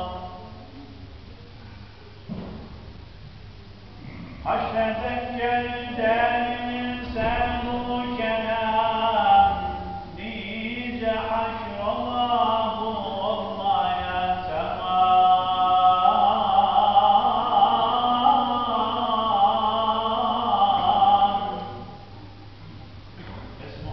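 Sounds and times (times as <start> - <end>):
man chanting religious recitation: 0.0 - 0.7, 4.4 - 22.0.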